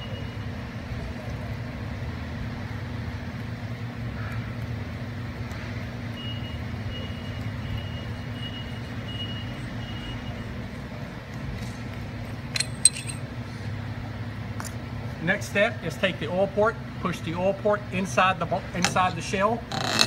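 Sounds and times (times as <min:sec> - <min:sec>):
low background hum: 0:00.0 - 0:20.0
faint high-pitched beeping: 0:06.2 - 0:10.6.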